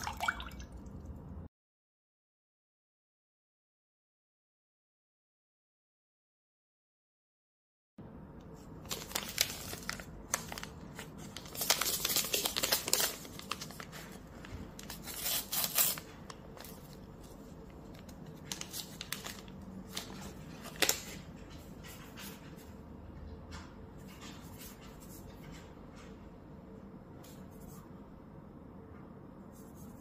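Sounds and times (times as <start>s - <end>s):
sachet crinkling and tearing: 8.7s - 21.2s.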